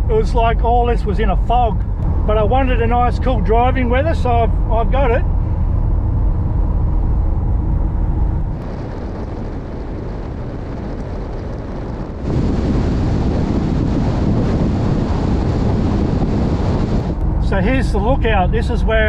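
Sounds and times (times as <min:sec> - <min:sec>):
engine and road rumble: 0:00.0 - 0:19.0
wind on microphone: 0:00.0 - 0:19.0.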